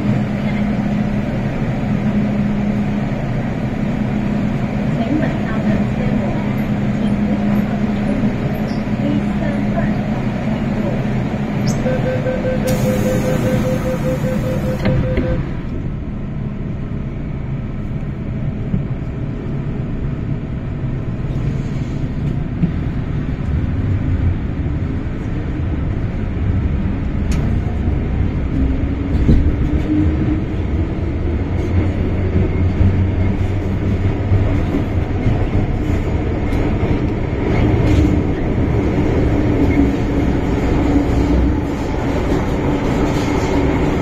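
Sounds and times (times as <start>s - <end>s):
train running rumble: 0.0s - 44.0s
train motor whine: 12.6s - 15.6s.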